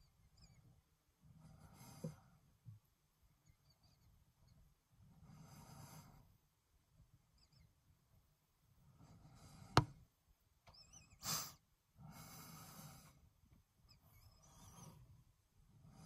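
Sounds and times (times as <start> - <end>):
short hiss: 11.2 - 11.6.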